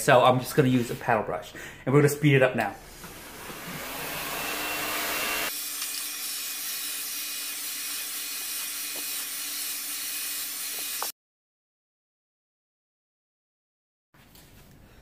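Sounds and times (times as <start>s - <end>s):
hair dryer blowing: 3.0s - 11.2s.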